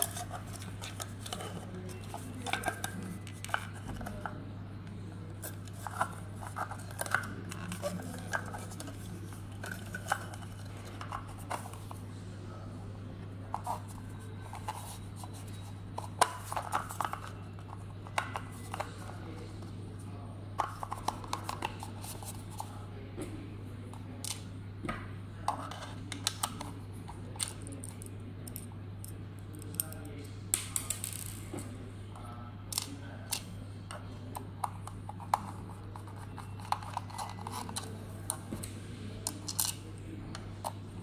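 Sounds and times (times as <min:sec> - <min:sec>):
plastic parts clicking and scraping: 0:00.0 - 0:04.4, 0:05.4 - 0:12.0, 0:13.5 - 0:19.1, 0:34.3 - 0:39.8
steady low hum: 0:00.0 - 0:41.0.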